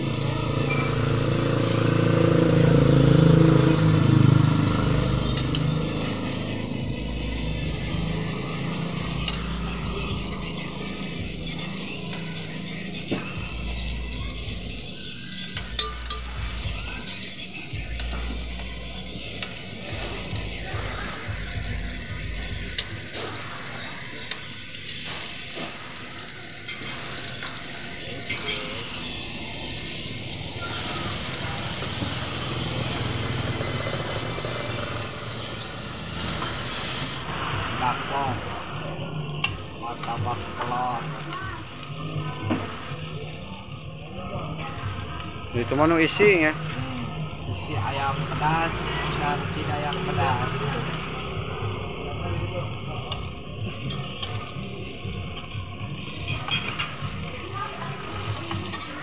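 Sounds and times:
batter sizzling in a pan: 0.0 - 59.0
motorcycle engine rumbling: 0.0 - 59.0
metal pick clinking on pan: 15.6 - 16.4.

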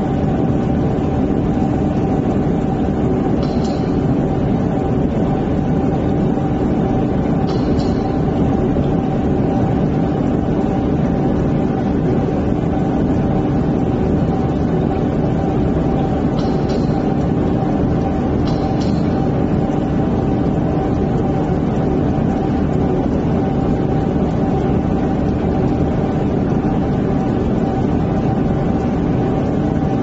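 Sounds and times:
laser welding machine humming: 0.0 - 30.0.

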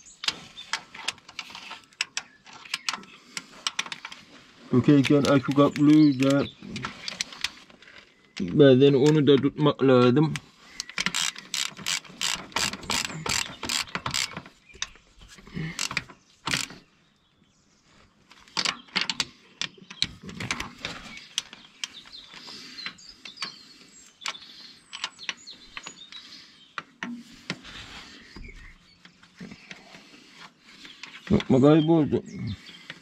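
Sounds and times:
ratchet wrench clicking: 10.8 - 14.4, 15.8 - 16.8.

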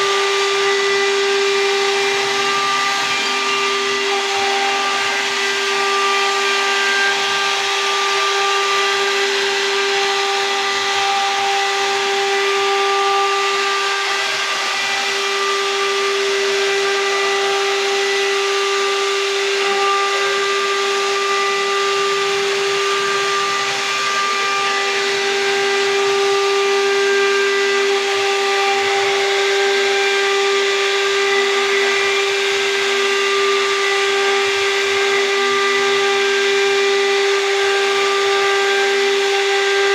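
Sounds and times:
hiss of wood cutting: 0.0 - 39.9
wood router spindle whine: 0.0 - 39.9.

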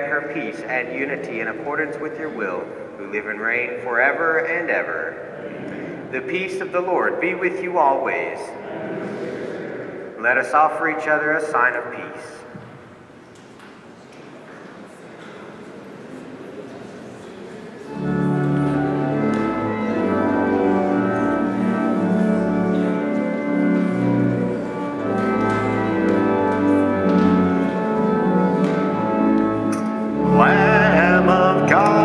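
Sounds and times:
organ playing chords: 0.0 - 12.5, 17.8 - 32.0
murmur of voices: 0.0 - 32.0
solo singer with vibrato: 30.3 - 32.0.

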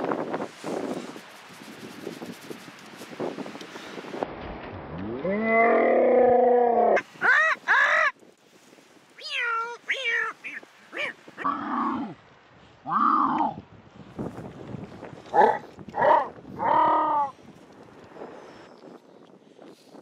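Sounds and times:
short falling yelps: 9.2 - 11.2.

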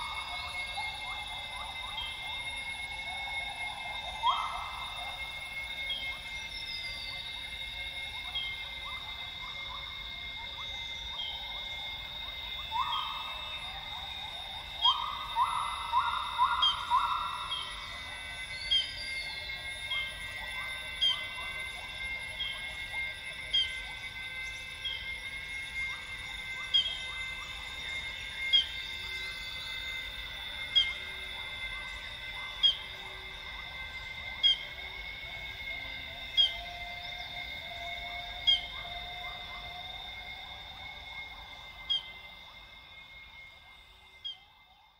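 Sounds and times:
high-pitched drone: 0.0 - 44.5.

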